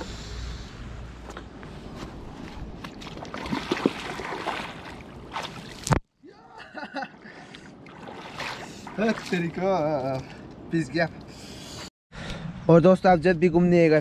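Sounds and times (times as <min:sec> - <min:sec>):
water splashing around wader: 0:02.8 - 0:06.0, 0:07.4 - 0:10.5.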